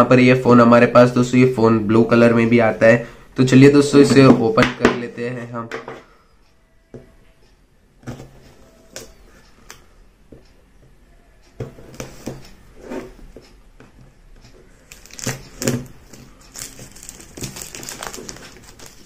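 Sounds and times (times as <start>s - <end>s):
plastic film crinkling: 14.8s - 19.0s
tool scratching plastic wrap: 14.9s - 19.0s.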